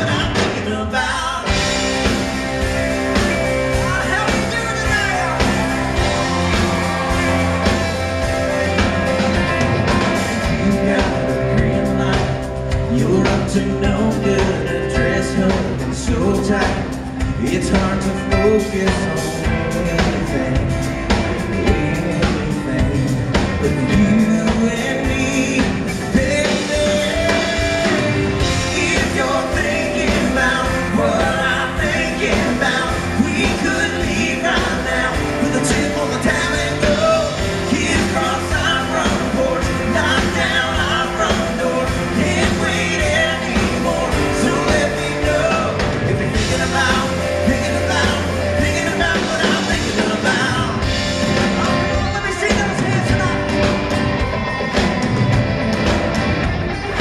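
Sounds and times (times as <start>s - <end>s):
lead and harmony vocals: 0.0s - 55.8s
live country-rock band: 0.0s - 57.0s.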